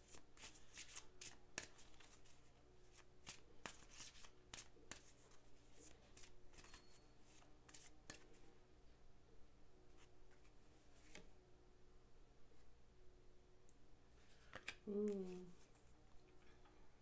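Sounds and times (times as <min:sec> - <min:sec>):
playing cards being shuffled: 0:14.3 - 0:15.8.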